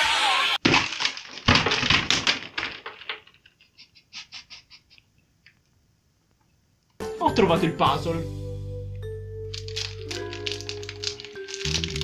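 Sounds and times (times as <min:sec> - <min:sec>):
crackles and rustles: 0:00.6 - 0:03.9, 0:09.5 - 0:12.0
chocolate egg cracking: 0:09.6 - 0:12.0.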